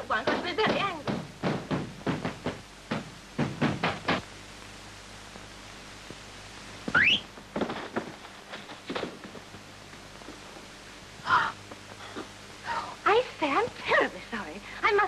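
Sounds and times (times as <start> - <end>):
knocking on wooden door: 0.2 - 4.2
thuds: 0.2 - 4.3, 6.9 - 9.5.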